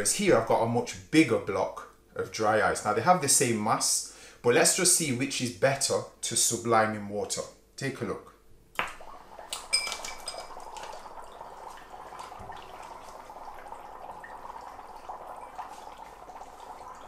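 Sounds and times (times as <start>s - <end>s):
water bubbling: 8.9s - 17.0s
dry ice clinking against glass: 9.5s - 11.4s.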